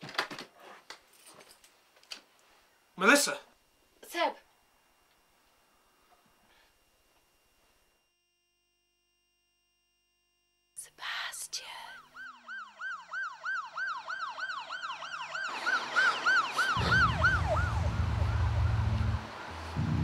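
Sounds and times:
emergency siren yelping: 12.2 - 20.0
low steady rumble: 16.8 - 20.0.

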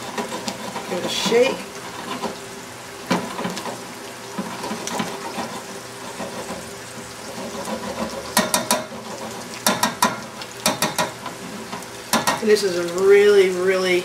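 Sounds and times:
risotto sizzling and bubbling: 0.0 - 14.0
utensil tapping on pan: 7.9 - 9.0, 9.6 - 12.5.

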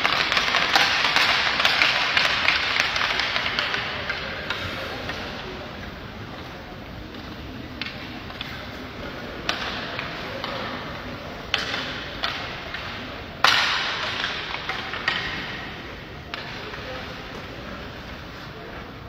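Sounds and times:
hockey knocks on rink: 0.0 - 5.4, 11.5 - 17.4.

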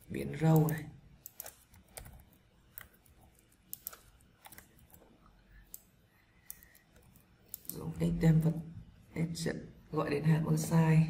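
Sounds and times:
keyboard typing: 0.0 - 7.9.

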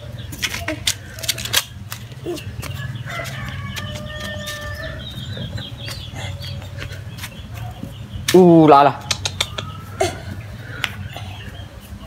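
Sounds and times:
rooster crowing: 2.8 - 5.2
scattered clicks: 9.0 - 9.7.

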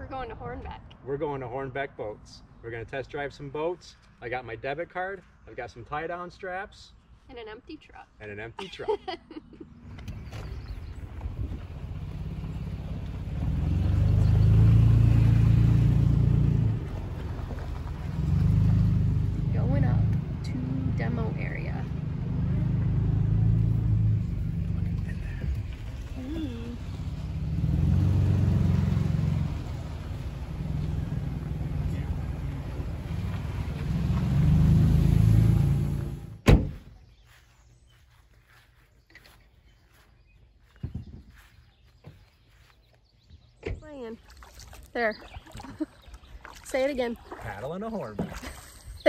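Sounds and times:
road noise: 0.0 - 49.0
truck engine hum: 9.1 - 36.6
sharp thump: 36.4 - 36.9.

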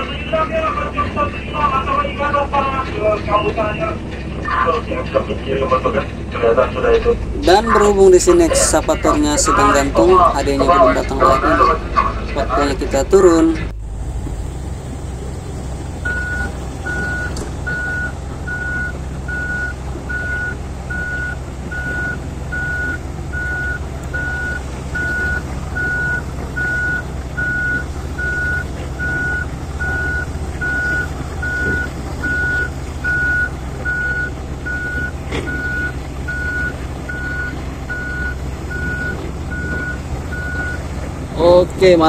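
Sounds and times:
diesel engine running: 0.0 - 42.0
excavator warning beeper: 6.8 - 41.4.

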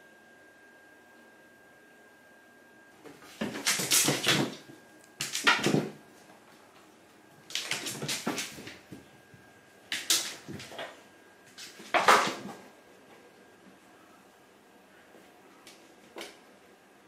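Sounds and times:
cat paws scrabbling: 7.5 - 9.0.

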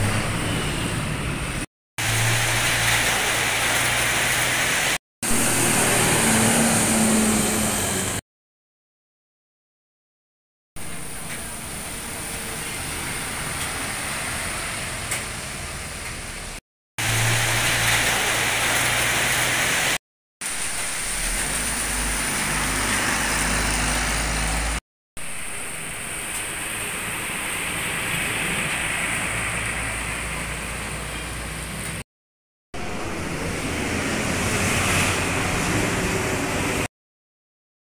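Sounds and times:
diesel bus engines: 0.0 - 8.2, 10.9 - 20.0, 20.8 - 24.8, 25.5 - 32.0, 32.8 - 36.9
tyres hissing on wet road: 0.0 - 8.2, 10.8 - 32.0, 32.8 - 36.9
deep engine drone: 5.2 - 8.2, 32.8 - 36.9.

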